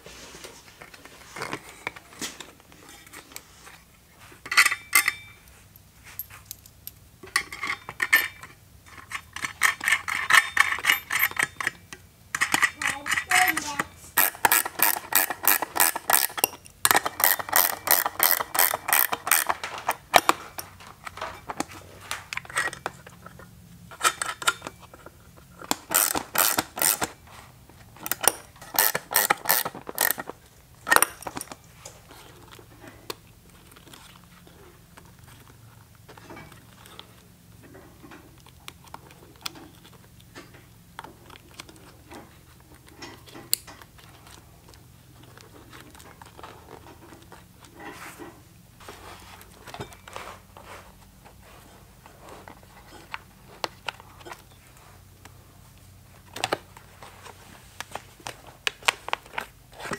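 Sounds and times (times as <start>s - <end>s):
clinks of parts being handled: 4.4s - 27.2s, 28.0s - 32.9s
rapid ratcheting clicks: 28.1s - 30.2s.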